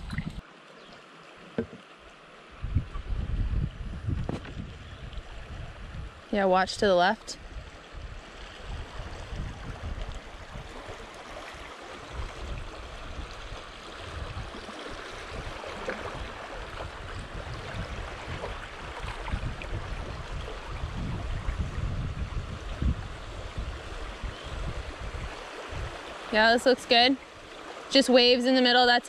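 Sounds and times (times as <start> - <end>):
river water rushing: 7.0 - 21.3, 22.5 - 29.0.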